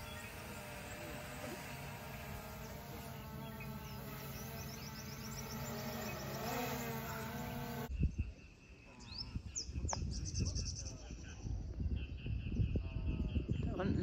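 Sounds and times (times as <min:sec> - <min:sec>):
drone propellers buzzing: 0:00.0 - 0:07.9.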